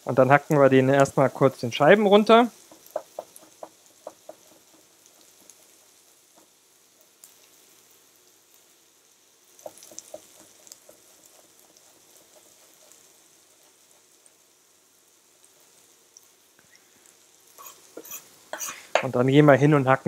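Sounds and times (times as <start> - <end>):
onions sizzling in a wok: 0.0 - 20.0
knife tapping on cutting board: 2.7 - 4.4.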